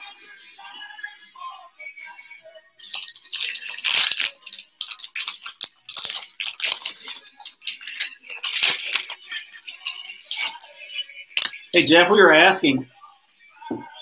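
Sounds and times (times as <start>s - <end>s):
foil wrapper crinkling and tearing: 2.9s - 11.8s.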